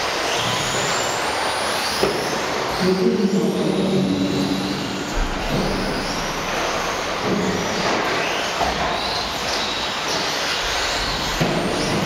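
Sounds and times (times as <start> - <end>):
high-pitched electric motor whines: 0.0 - 12.0
rush of drivetrains and tyres: 3.8 - 12.0.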